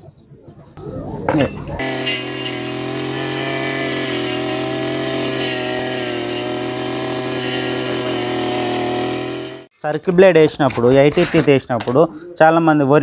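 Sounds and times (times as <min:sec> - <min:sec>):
brush cutter engine running: 0:01.8 - 0:09.7.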